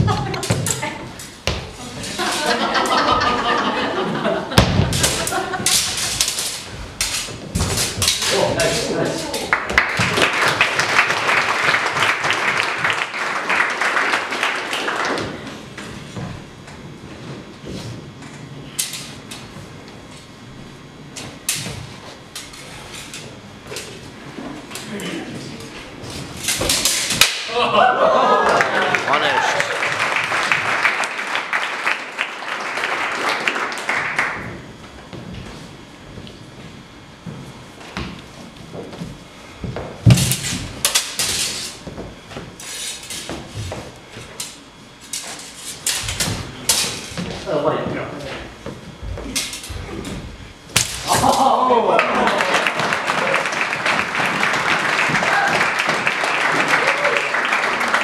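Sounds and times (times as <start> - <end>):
steel blades clashing: 5.0 - 9.5.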